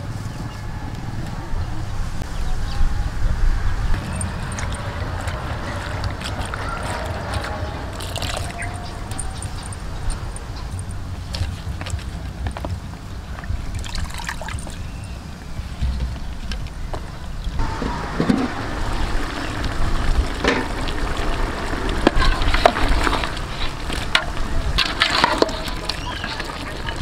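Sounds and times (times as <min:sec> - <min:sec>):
wind on microphone: 0:00.0 - 0:27.0
pot of curry boiling and bubbling: 0:17.6 - 0:27.0.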